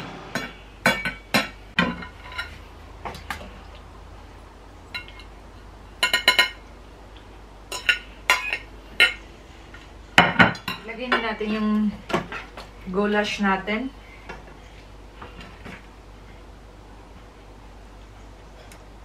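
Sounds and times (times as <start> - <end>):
wire skimmer clinking on dishes: 0.4 - 3.4, 4.9 - 5.3, 6.0 - 6.7, 7.7 - 12.5.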